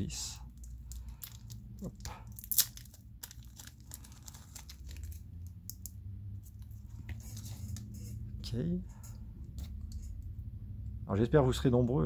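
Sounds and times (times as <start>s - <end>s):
plastic bag crinkling: 0.5s - 7.7s.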